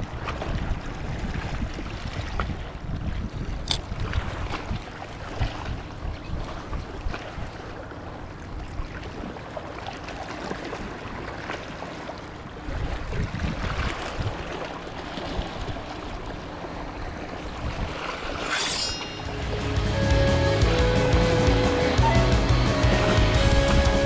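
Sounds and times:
small waves lapping over rocks: 0.0 - 18.5.

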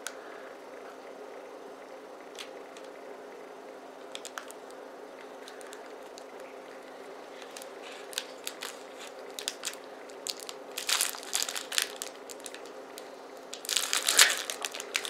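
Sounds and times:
wrapper crinkling: 4.1 - 4.7, 5.4 - 15.0.

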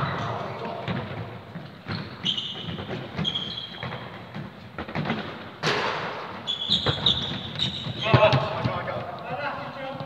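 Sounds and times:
trainers squeaking on court: 1.7 - 4.4, 6.4 - 8.8.

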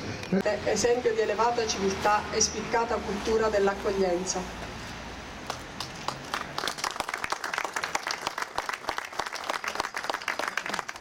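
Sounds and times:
crowd applause: 5.8 - 11.0.

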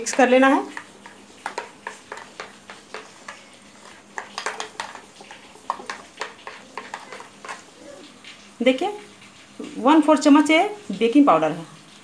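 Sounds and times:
spoon scraping glass bowl: 0.0 - 7.8.

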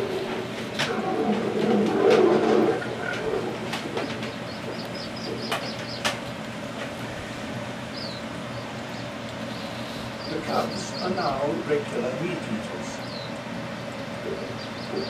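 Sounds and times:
low animal call: 0.0 - 5.8, 14.2 - 15.0.

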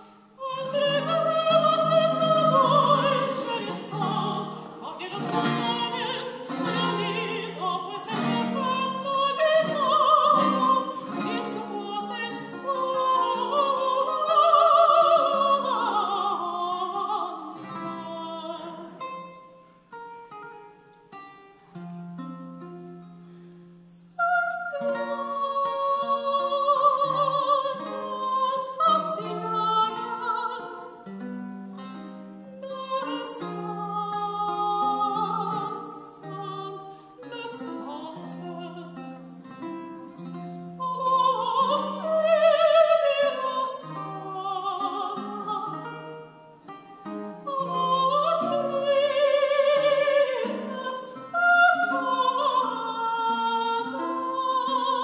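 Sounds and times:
soprano singing with vibrato: 0.0 - 19.8, 23.8 - 55.0
plucked guitar chords: 0.6 - 14.1.

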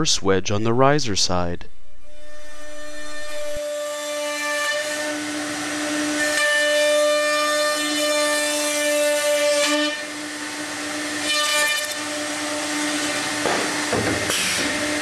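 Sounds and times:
router spindle whine: 2.0 - 13.9.

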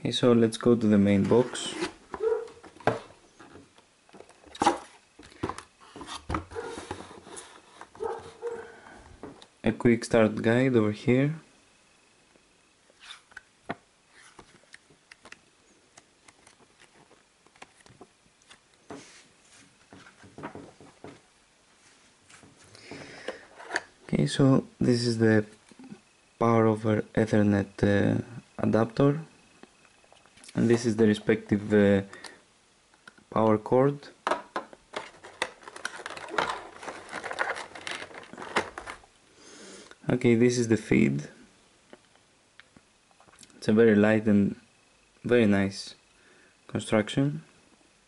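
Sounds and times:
cardboard rustling: 1.1 - 8.6, 34.8 - 39.0
paper pages rustling: 34.9 - 39.0
scraping: 34.9 - 39.0.

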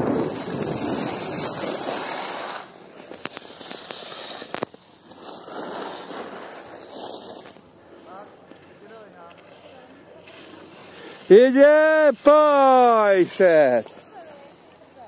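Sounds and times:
wind rushing over microphone: 0.0 - 1.8
skis scraping on snow: 0.0 - 15.0.

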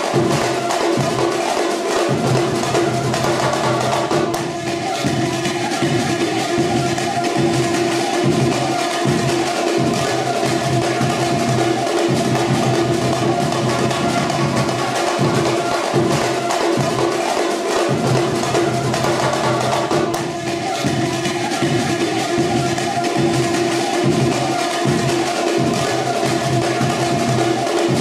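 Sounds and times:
wood-block and drum hits: 0.0 - 28.0.

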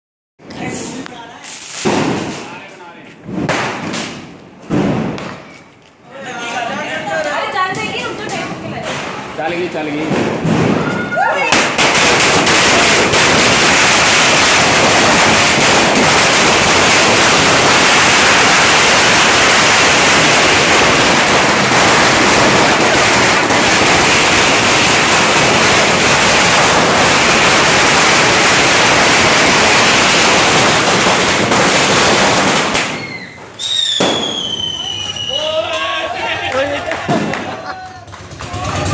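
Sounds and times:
firecracker string bangs: 10.0 - 34.8.

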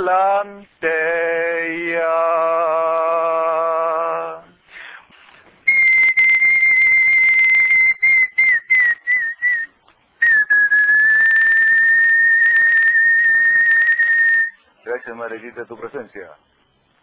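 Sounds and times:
high whistle: 5.6 - 15.1.

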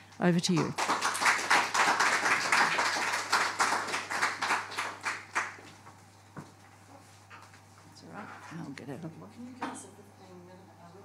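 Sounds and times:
audience applauding: 0.4 - 5.7.

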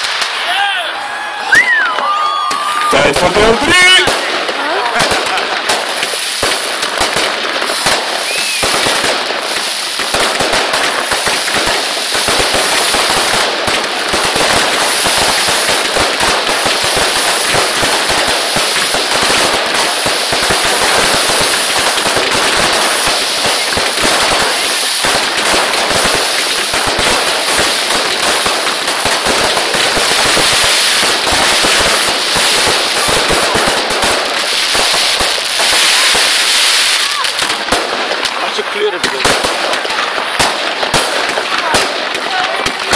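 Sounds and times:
fireworks crackling and banging: 0.0 - 42.9.

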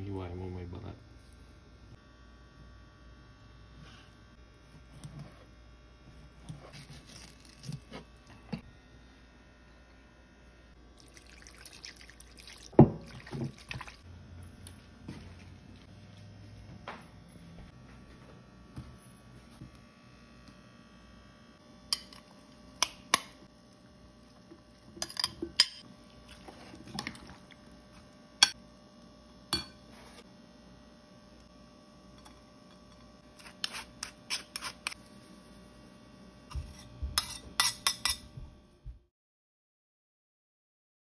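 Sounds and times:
metal spoon clinking against bowl: 25.0 - 25.8, 37.2 - 38.2.

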